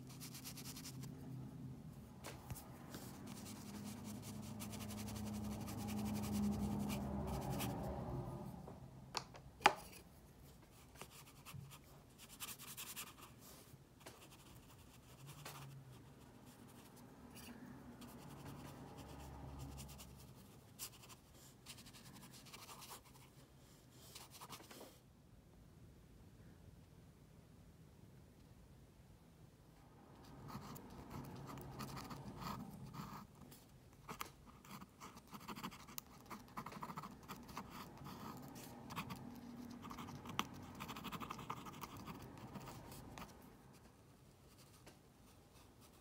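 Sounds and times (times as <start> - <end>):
pen scratching on paper: 0.0 - 1.4, 2.2 - 7.9, 10.8 - 13.3, 14.1 - 23.4, 30.2 - 44.8
low background hum: 0.0 - 46.0.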